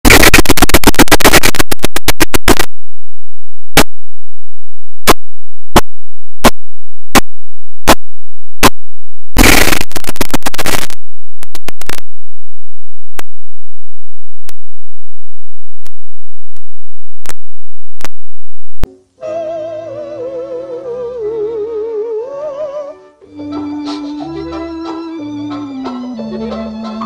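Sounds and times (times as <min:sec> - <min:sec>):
distorted glitch noise: 0:00.0 - 0:02.7, 0:09.4 - 0:12.1
sharp clicks: 0:00.0 - 0:02.7.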